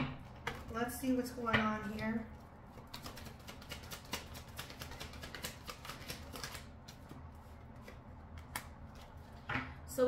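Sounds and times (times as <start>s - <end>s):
cards being shuffled: 2.8s - 9.4s.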